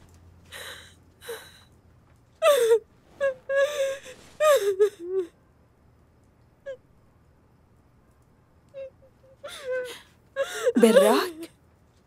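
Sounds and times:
person sobbing: 2.4 - 5.3, 9.4 - 11.4.

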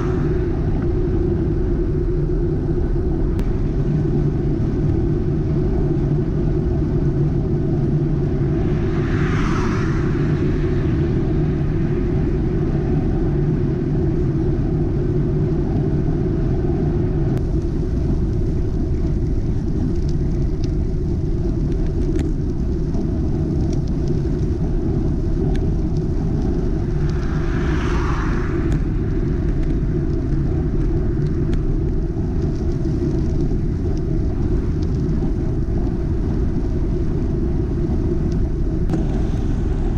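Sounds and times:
cars passing with tyre hiss: 0.0 - 2.8, 3.4 - 16.4, 24.2 - 32.0, 36.0 - 39.9
wind and tyre rumble: 0.0 - 39.9.

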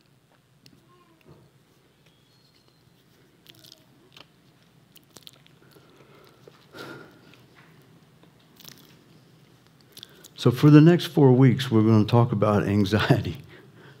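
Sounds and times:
small clicks and crackles: 2.0 - 6.7, 7.3 - 10.4.

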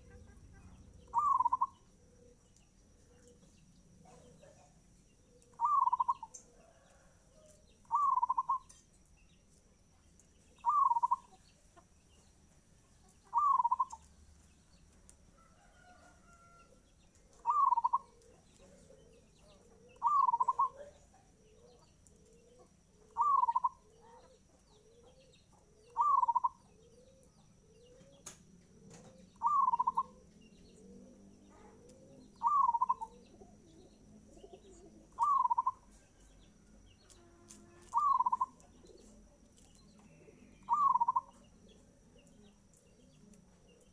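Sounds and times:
dove cooing: 0.0 - 7.1, 7.8 - 8.7, 10.6 - 11.4, 13.2 - 14.0, 17.2 - 36.1, 37.8 - 39.4, 40.2 - 42.2.

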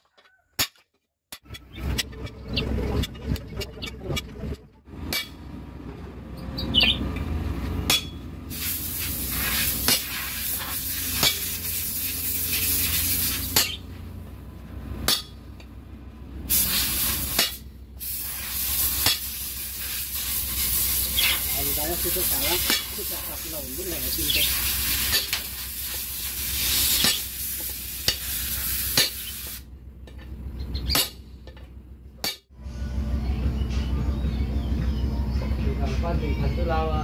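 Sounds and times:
hammer striking chisel on metal: 7.9 - 8.2, 11.2 - 11.6, 13.5 - 13.8, 15.1 - 15.4, 19.0 - 19.3, 22.6 - 23.0, 27.0 - 27.3, 28.9 - 29.3, 30.9 - 32.5
hiss: 8.5 - 13.8, 16.5 - 29.7.

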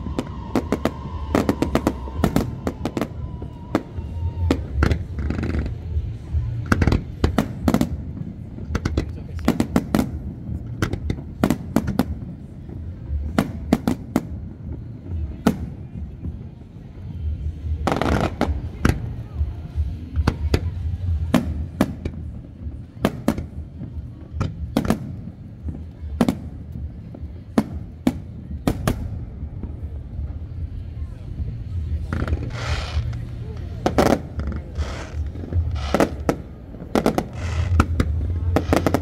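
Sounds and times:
low rumble: 0.0 - 39.0
firework shells bursting: 32.0 - 39.0.

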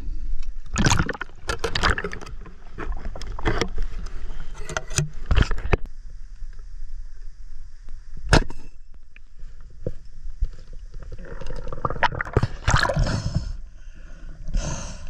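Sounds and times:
bubbling and rushing water: 0.7 - 3.7, 11.0 - 13.2.

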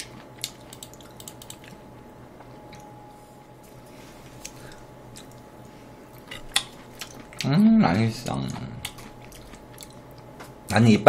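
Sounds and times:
low steady hum: 0.0 - 11.0
chewing food: 4.4 - 7.6, 8.2 - 10.6.

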